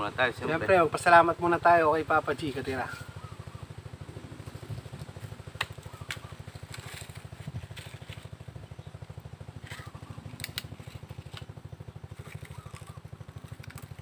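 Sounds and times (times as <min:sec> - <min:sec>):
small engine puttering: 0:00.0 - 0:14.0
sharp clicks: 0:09.7 - 0:11.5.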